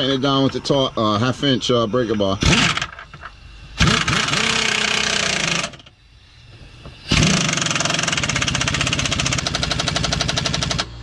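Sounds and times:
impact wrench hammering: 0:06.8 - 0:10.9.

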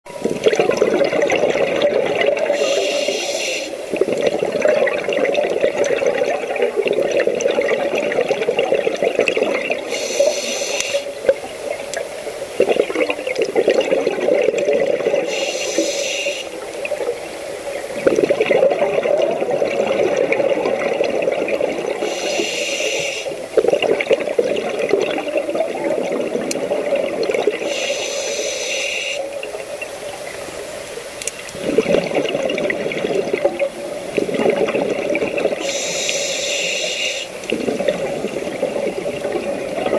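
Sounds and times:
exhaled bubbles rushing: 0:00.1 - 0:02.9, 0:03.8 - 0:09.9, 0:11.1 - 0:15.3, 0:16.5 - 0:22.1, 0:23.3 - 0:27.7, 0:31.5 - 0:35.8, 0:37.4 - 0:39.9
regulator inhale hiss: 0:02.5 - 0:04.0, 0:09.8 - 0:11.2, 0:15.2 - 0:16.6, 0:22.0 - 0:23.5, 0:27.6 - 0:29.4, 0:35.6 - 0:37.5.

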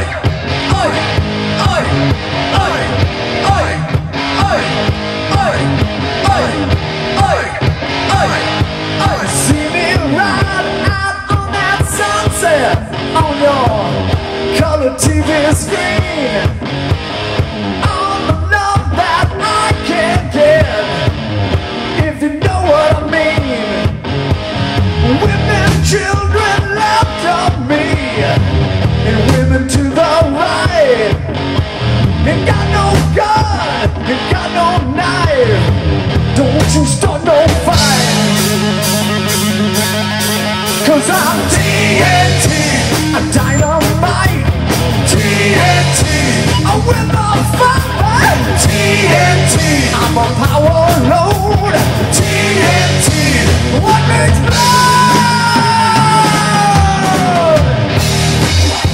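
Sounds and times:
electric guitars bending notes: 0:00.0 - 0:58.9
steady drum beat: 0:00.0 - 0:58.9.

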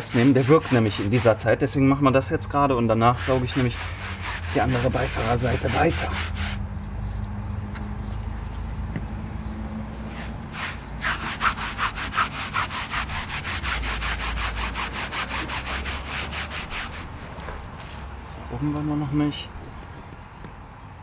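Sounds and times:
stiff brush scrubbing floor mat: 0:00.0 - 0:01.4, 0:03.1 - 0:06.6, 0:10.0 - 0:18.1.

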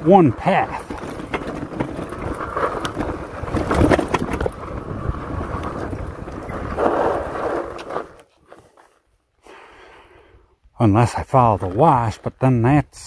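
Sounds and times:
bike tyres and frame rattling: 0:00.0 - 0:09.0
wind buffeting microphone: 0:02.1 - 0:07.5.

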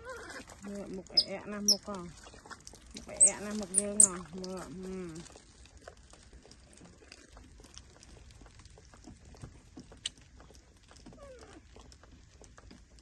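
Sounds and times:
baby monkey squeak: 0:01.1 - 0:01.9, 0:03.0 - 0:04.2.

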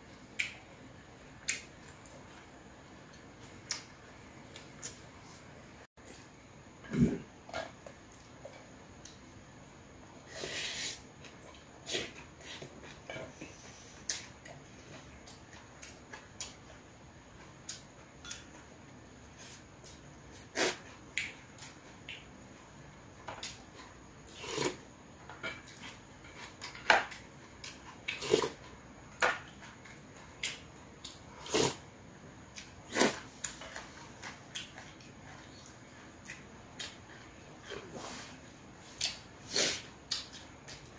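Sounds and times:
man chewing food: 0:11.1 - 0:31.8, 0:32.5 - 0:40.9.

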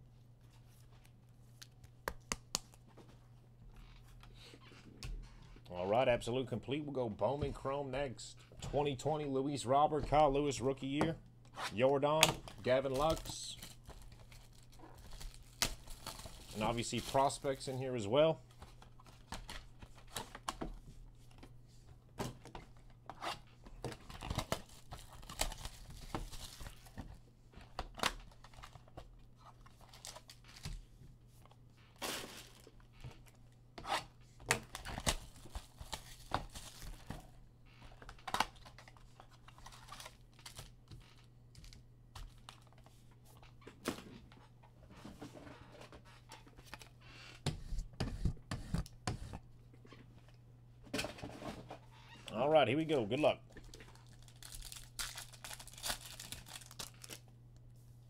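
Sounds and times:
plastic packaging crinkling and tearing: 0:12.4 - 0:17.8, 0:24.1 - 0:27.0, 0:53.6 - 0:57.3.

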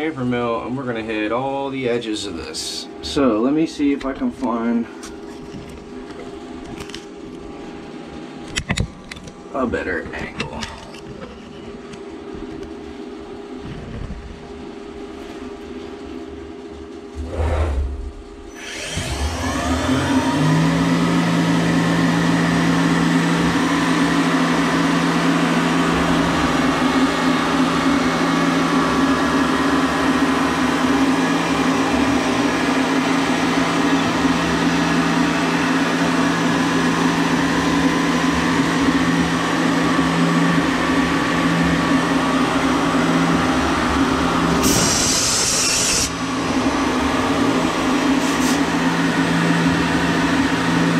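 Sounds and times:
mill spindle whine: 0:00.0 - 0:50.9
milling cutter cutting aluminum: 0:44.5 - 0:46.2
high hiss: 0:44.6 - 0:46.2.

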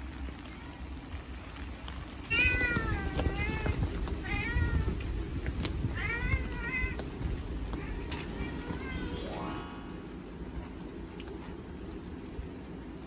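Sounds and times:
cat meowing: 0:02.3 - 0:05.0.

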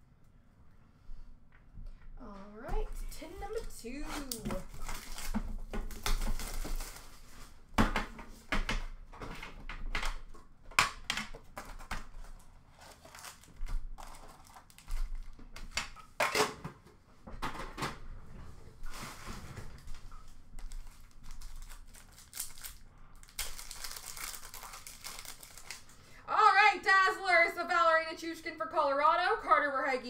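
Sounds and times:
packaging crinkling and rustling: 0:03.0 - 0:07.7, 0:09.2 - 0:16.5, 0:18.8 - 0:26.1.

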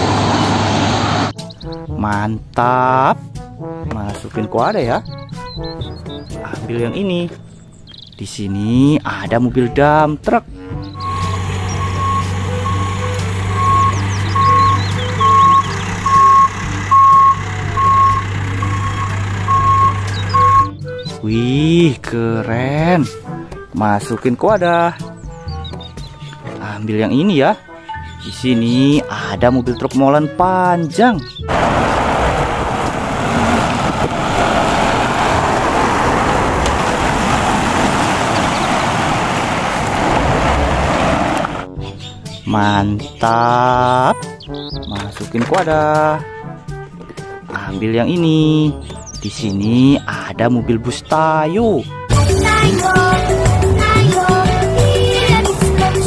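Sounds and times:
road noise on wet pavement: 0:00.0 - 0:01.4, 0:11.0 - 0:20.7, 0:31.5 - 0:41.7
truck engine hum: 0:00.0 - 0:01.9, 0:10.5 - 0:21.4, 0:31.4 - 0:42.4, 0:51.9 - 0:56.0
reversing alarm beeping: 0:11.0 - 0:20.8.

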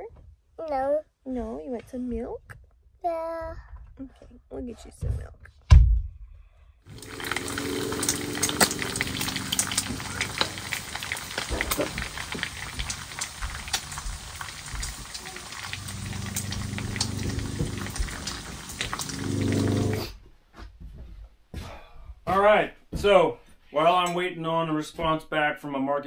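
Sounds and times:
bacon sizzling and popping: 0:06.9 - 0:20.1
low humming: 0:06.9 - 0:20.1.

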